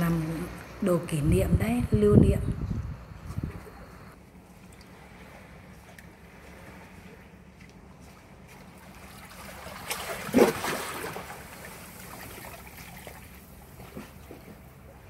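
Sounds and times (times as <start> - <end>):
seawater washing over rocks: 8.9 - 14.2.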